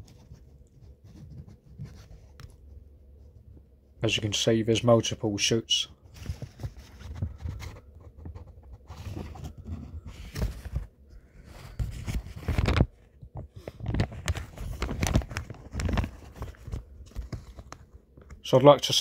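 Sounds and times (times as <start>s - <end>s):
handling noise rustling and thumps: 6.0s - 18.2s.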